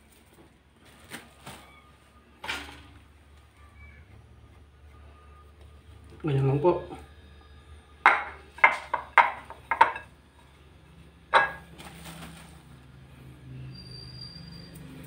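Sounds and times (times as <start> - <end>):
sharp knocks on glass dish: 8.1 - 10.0.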